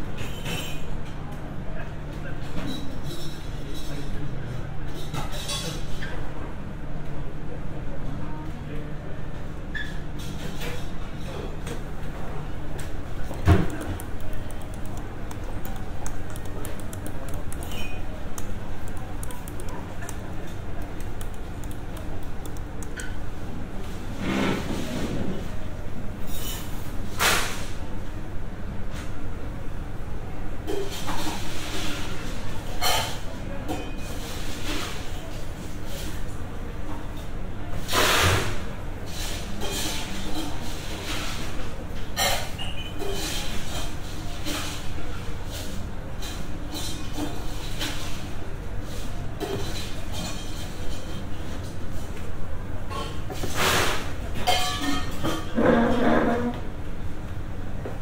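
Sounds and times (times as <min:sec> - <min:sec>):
low room hum: 0:00.0 - 0:38.0.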